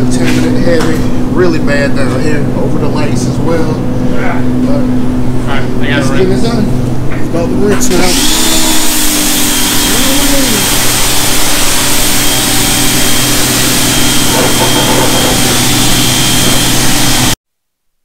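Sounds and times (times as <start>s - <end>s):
pressure washer motor hum: 6.4s - 17.4s.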